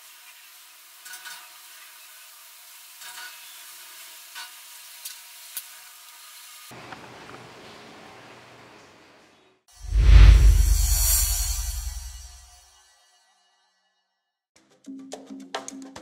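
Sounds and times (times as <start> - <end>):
music: 9.9 - 16.0.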